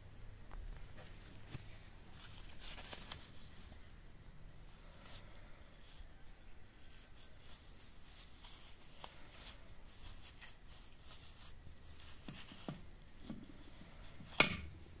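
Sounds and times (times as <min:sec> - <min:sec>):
gloved hands rubbing tool: 0:04.7 - 0:14.4
sharp metallic clank: 0:14.4 - 0:14.7.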